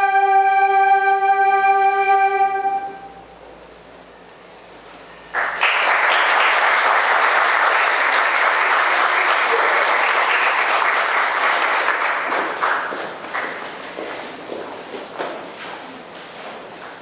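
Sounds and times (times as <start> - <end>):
audience applauding: 5.3 - 14.3.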